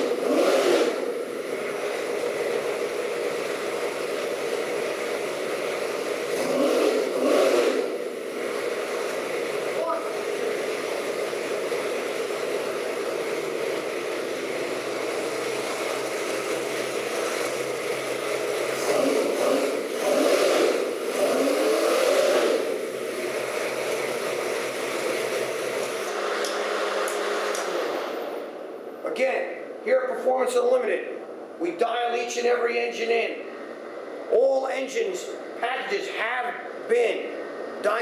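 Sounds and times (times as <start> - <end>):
engine idling and revving: 0.0 - 29.9.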